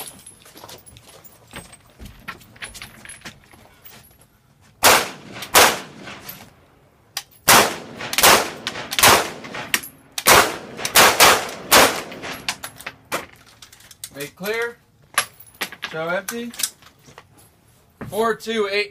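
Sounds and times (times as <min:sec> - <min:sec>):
rifle gunshots with echo: 0:04.8 - 0:06.2, 0:07.5 - 0:12.5.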